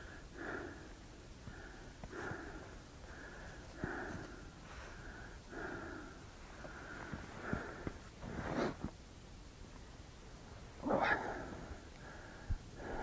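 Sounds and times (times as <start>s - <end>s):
person breathing and sniffing: 1.5s - 8.9s.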